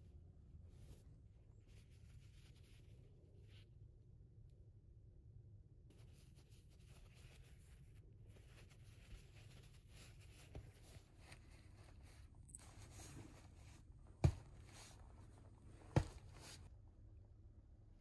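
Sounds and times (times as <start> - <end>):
fabric rustling: 5.9 - 16.7
soft thumps on mattress: 12.7 - 16.7.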